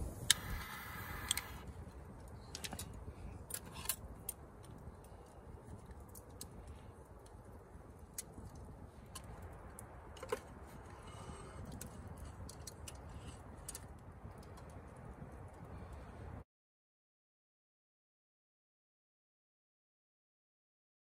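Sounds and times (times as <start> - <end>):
campfire crackling and popping: 0.0 - 16.2.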